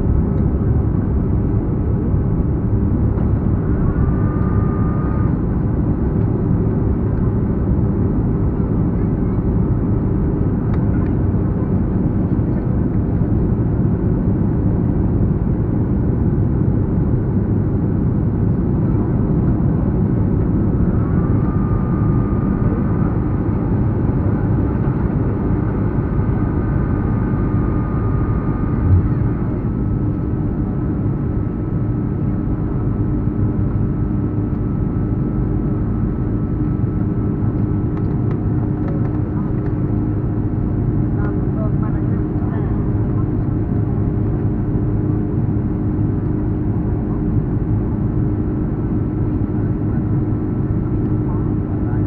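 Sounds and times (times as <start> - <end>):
jet engine and air rumble: 0.0 - 52.0
faint high whine: 20.4 - 24.6.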